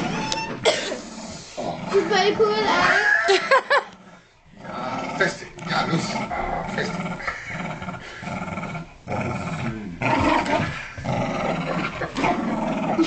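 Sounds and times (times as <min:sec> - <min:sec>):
dog growling: 0:01.0 - 0:13.0.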